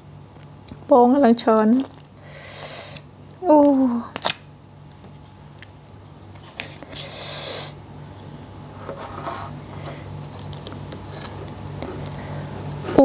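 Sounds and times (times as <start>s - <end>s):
low steady hum: 0.0s - 13.0s
hissing intake of breath: 2.2s - 3.0s, 6.9s - 7.8s.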